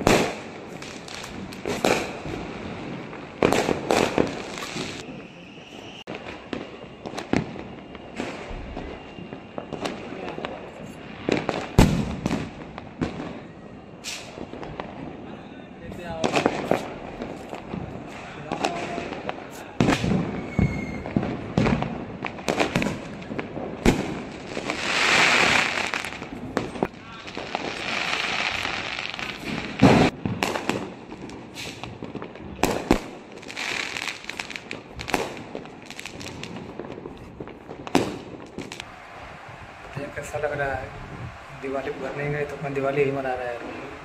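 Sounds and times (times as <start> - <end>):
firecracker bangs: 0.0 - 15.2, 15.9 - 44.0
hissing crackle of aerial shells: 24.2 - 32.1.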